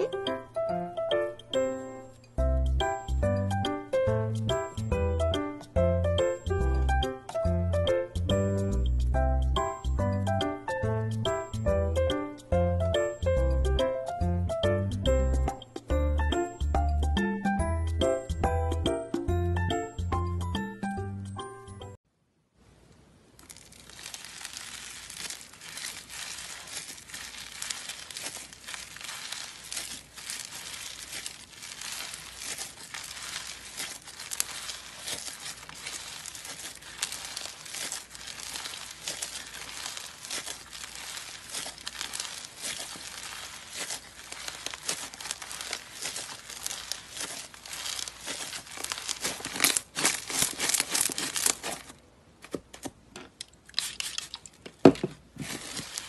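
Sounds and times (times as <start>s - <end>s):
slime crackling and crinkling: 0.0s - 0.3s, 23.2s - 52.0s, 53.5s - 56.0s.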